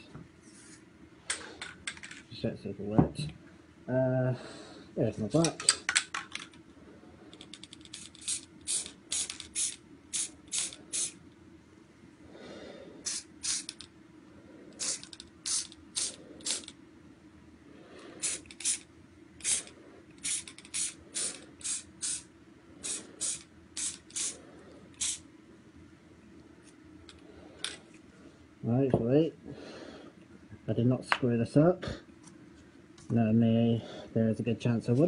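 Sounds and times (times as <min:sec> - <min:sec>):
spray paint can hissing bursts: 0:07.9 - 0:11.2, 0:13.0 - 0:13.8, 0:14.8 - 0:16.8, 0:18.2 - 0:24.4, 0:25.0 - 0:25.2.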